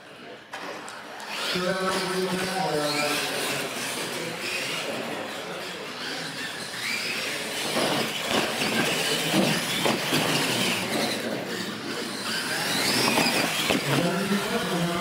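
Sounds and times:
rc truck motors whining: 0.1 - 15.0.

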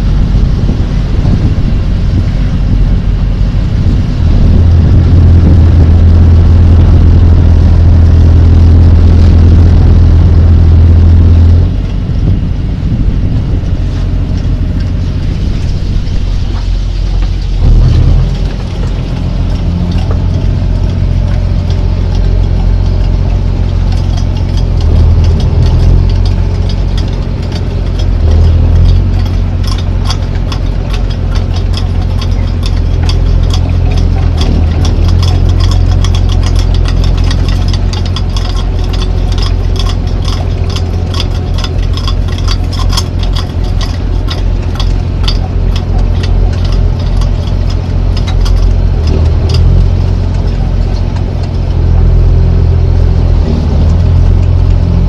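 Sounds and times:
boat diesel engine humming: 0.0 - 55.0
wind: 0.0 - 55.0.

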